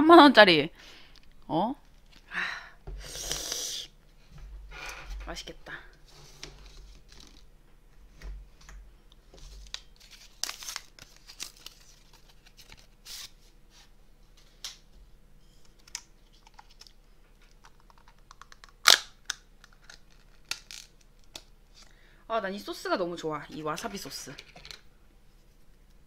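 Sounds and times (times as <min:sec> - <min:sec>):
packaging rustling and crinkling: 0:09.3 - 0:13.4
packaging tearing crackle: 0:09.6 - 0:13.3, 0:17.9 - 0:21.0.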